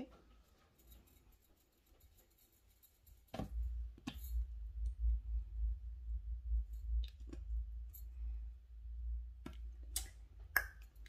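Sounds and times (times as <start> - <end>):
low handling rumble: 3.5 - 9.8.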